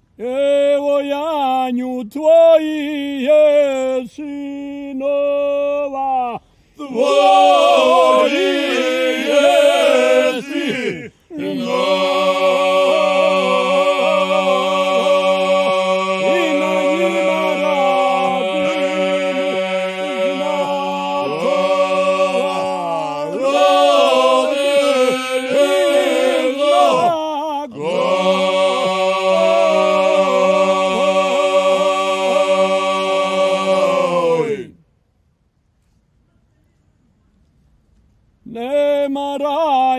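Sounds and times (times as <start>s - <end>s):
men singing a cappella: 0.2s - 34.8s
ornamented solo voice: 16.2s - 24.4s.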